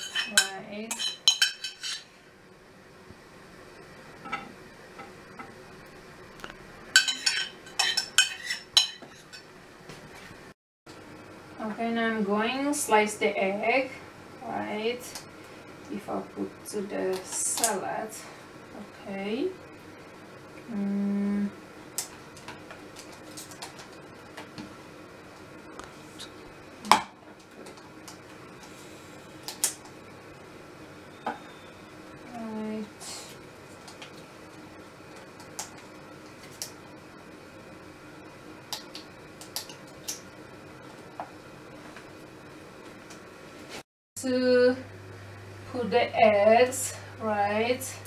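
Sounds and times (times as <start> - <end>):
metal spoon scraping ceramic bowl: 0.0 - 2.1.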